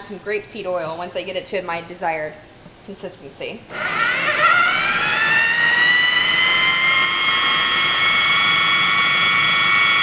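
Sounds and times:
food processor motor whining: 3.7s - 10.0s.

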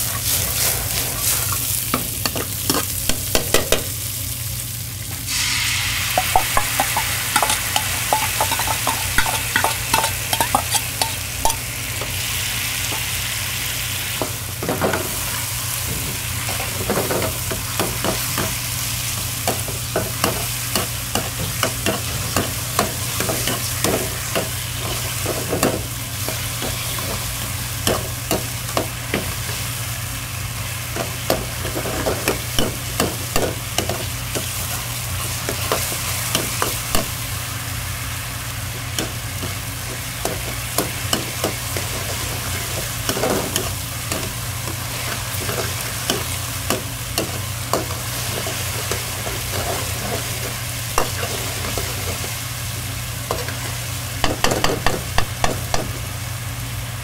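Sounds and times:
food sizzling in a pan: 0.0s - 57.0s
metal utensil scraping a pan: 6.2s - 11.6s.

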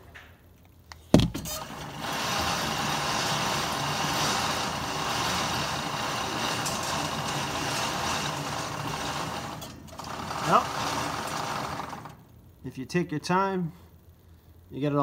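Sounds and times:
motorised target carrier running: 1.2s - 12.4s.

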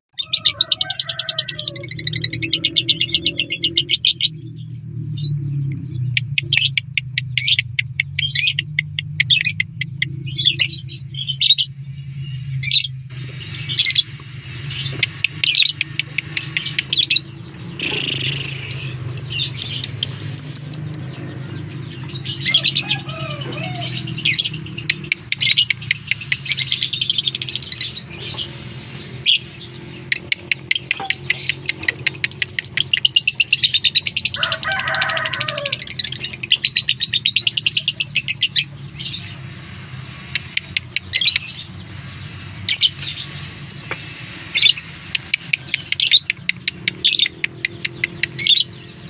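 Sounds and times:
lovebird chattering song: 14.7s - 39.5s, 40.2s - 49.0s.

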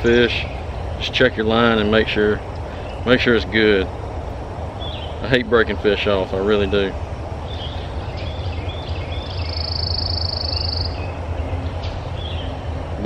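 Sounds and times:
steady low hum: 0.0s - 13.0s
rapid high bird trill: 6.5s - 12.6s
short high bird chirps: 7.5s - 11.2s.

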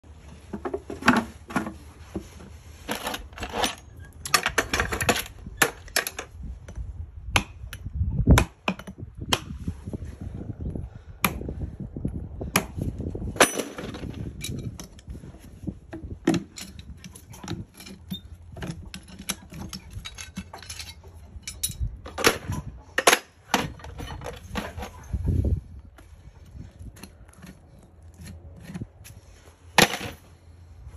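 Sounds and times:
metal tools clinking on horseshoe: 2.9s - 6.8s, 13.4s - 15.4s, 16.0s - 25.4s, 26.4s - 29.1s.

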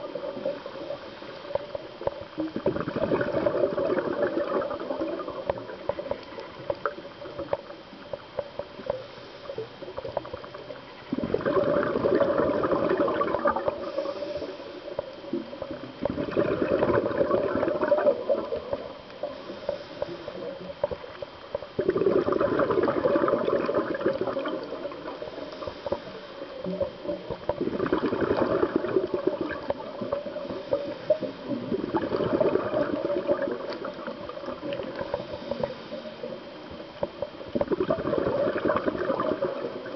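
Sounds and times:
diver's exhaled bubbles gushing: 0.0s - 9.0s, 9.6s - 19.8s, 20.4s - 39.9s
faint clicks: 0.4s - 2.6s, 5.1s - 11.1s, 17.9s - 21.8s.

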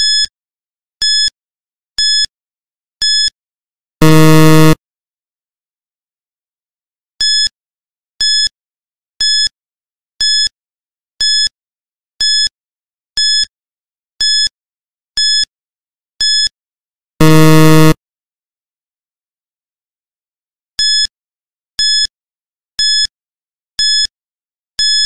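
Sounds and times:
low buzzer: 4.0s - 4.8s, 17.2s - 18.0s
short high beeps: 4.0s - 4.8s, 17.2s - 18.0s.

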